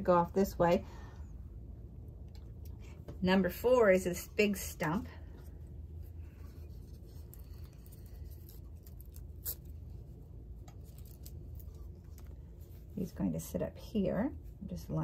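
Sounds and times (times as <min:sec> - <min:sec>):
low hum: 0:00.0 - 0:15.0
paper rustling and crinkling: 0:06.3 - 0:12.9.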